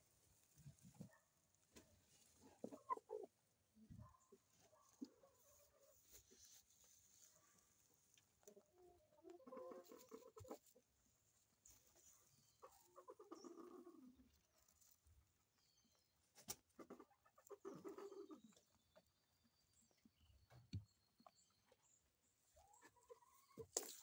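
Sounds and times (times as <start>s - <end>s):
hen clucking: 2.4s - 3.5s, 8.2s - 10.9s, 11.7s - 14.4s, 16.4s - 18.8s, 22.6s - 24.0s.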